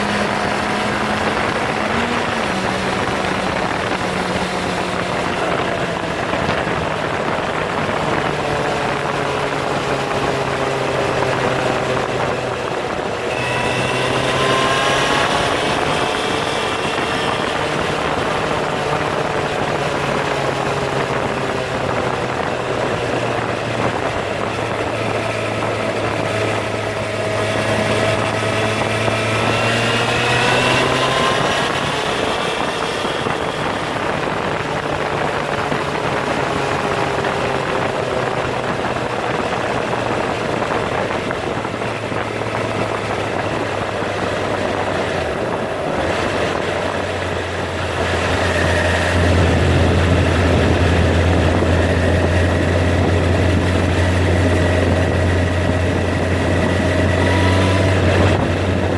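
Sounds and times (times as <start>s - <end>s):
motorcycle engine running: 0.0s - 58.9s
road and wind noise: 0.0s - 58.9s.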